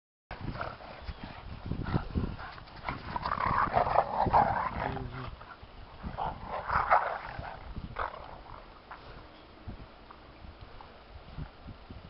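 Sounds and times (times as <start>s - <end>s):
dogs playing: 0.3s - 9.3s.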